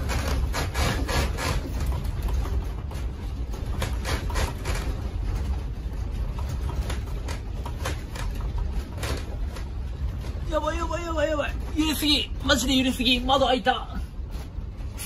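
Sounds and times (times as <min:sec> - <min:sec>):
room rattling and clattering: 0:00.0 - 0:15.0.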